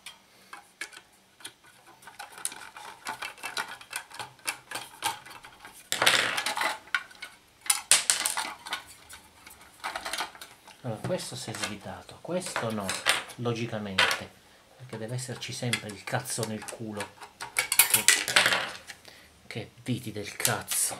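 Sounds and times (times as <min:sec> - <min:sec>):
metal and plastic scraping: 0:00.0 - 0:14.3, 0:14.9 - 0:19.0
metal fan guard rattling: 0:00.8 - 0:13.4, 0:15.0 - 0:18.5.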